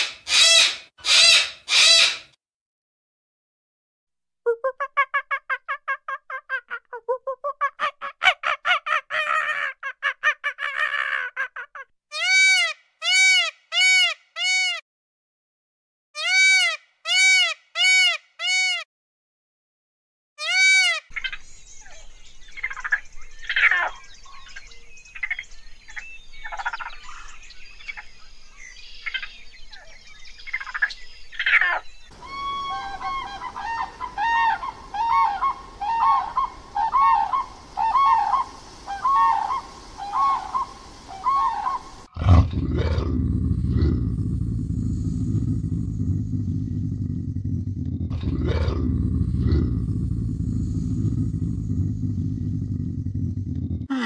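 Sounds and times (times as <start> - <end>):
background noise: 21.2 - 42.8
animal calls: 31.4 - 54.0.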